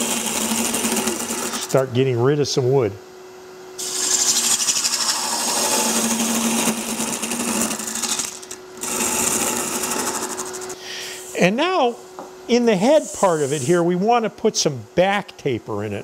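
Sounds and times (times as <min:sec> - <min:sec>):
gouge cutting wood on a lathe: 0:00.0 - 0:01.8, 0:03.8 - 0:10.8
lathe motor hum: 0:00.0 - 0:01.9, 0:03.8 - 0:10.8.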